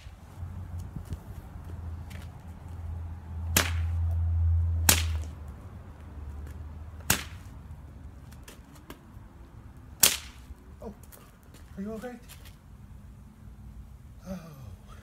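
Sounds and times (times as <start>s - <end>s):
whip cracking: 3.5s - 4.1s, 4.8s - 5.4s, 7.0s - 7.5s, 10.0s - 10.5s.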